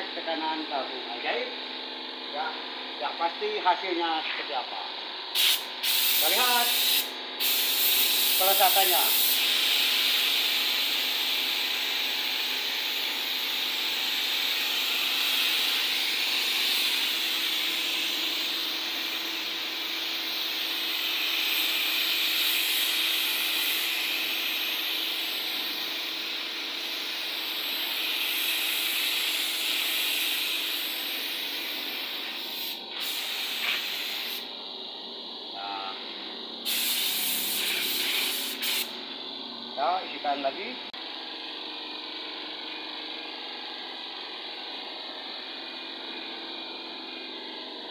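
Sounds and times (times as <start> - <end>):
paint spray gun hissing: 5.3 - 35.2, 36.6 - 39.2.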